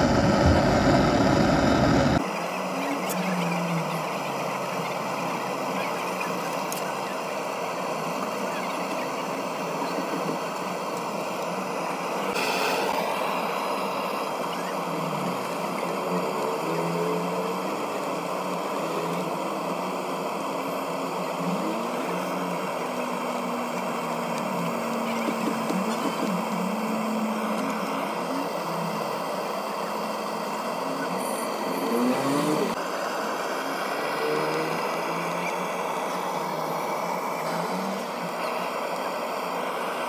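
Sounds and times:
vehicle engines and traffic: 0:09.1 - 0:40.0
short hissing burst: 0:12.3 - 0:13.2.

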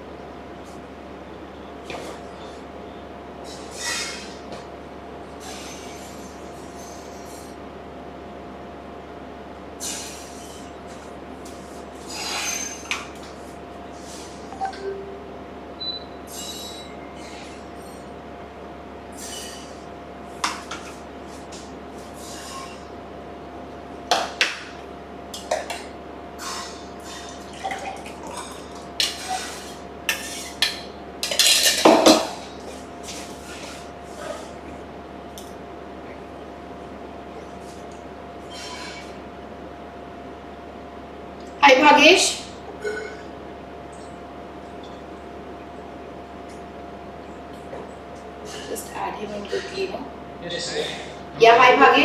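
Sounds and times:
faint steady hum: 0:00.0 - 0:52.0
dishes and utensils clinking: 0:26.4 - 0:32.4.

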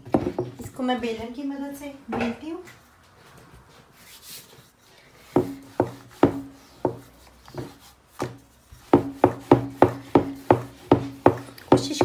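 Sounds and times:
rolling pin knocking on wooden board: 0:00.0 - 0:00.6, 0:05.3 - 0:12.0.

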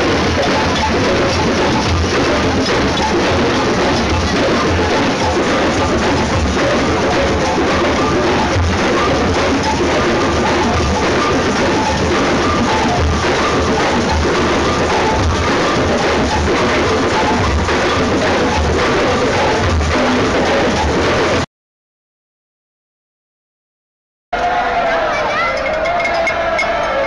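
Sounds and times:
drum-driven music: 0:00.0 - 0:21.5.

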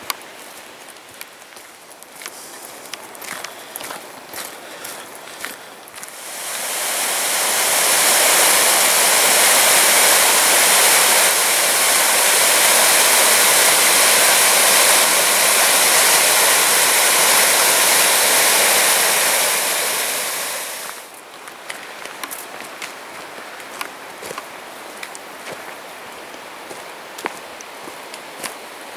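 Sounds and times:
small waterfall splashing: 0:06.0 - 0:21.2.

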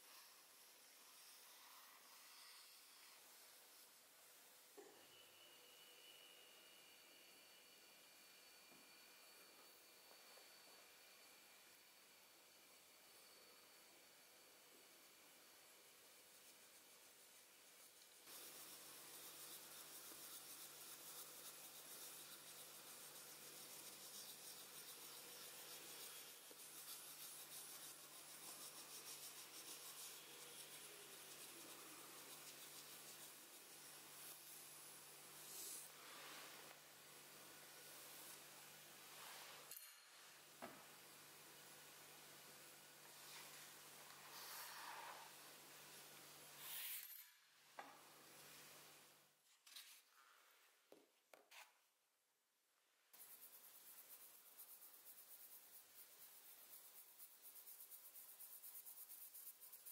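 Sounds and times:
pencil scratching on paper: 0:18.2 - 0:35.9, 0:43.4 - 0:45.5
faint clicks of coins and paper: 0:49.4 - 0:50.4.

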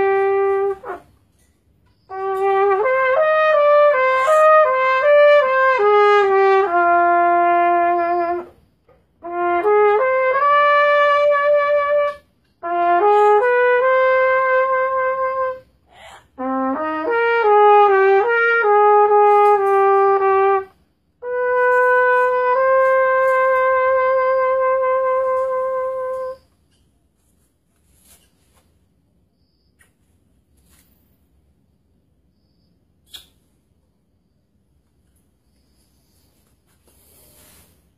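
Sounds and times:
solo trumpet slow melody: 0:00.0 - 0:26.6.

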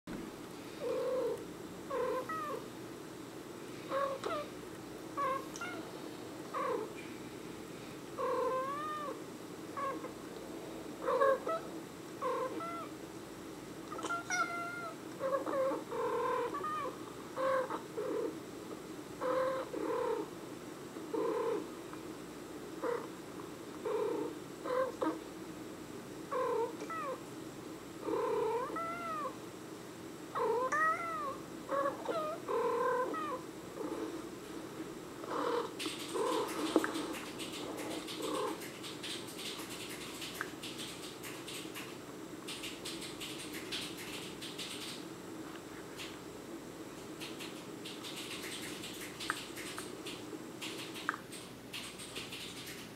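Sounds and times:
steady low hum: 0:00.1 - 0:52.9
cats meowing: 0:01.0 - 0:02.6, 0:05.2 - 0:05.9, 0:08.2 - 0:09.2, 0:11.0 - 0:12.9, 0:13.9 - 0:17.8, 0:28.2 - 0:29.4, 0:30.4 - 0:33.4.

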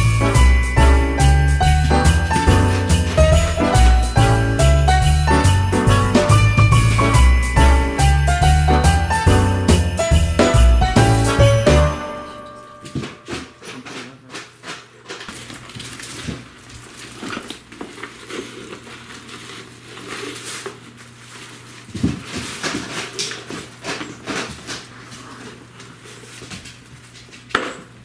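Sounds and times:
paper bags rustling: 0:00.0 - 0:04.9, 0:12.8 - 0:27.5.

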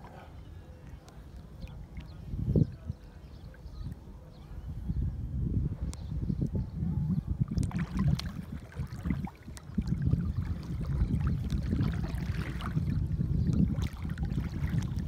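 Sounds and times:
wind buffeting microphone: 0:01.4 - 0:15.0
water lapping and splashing: 0:07.3 - 0:15.0.

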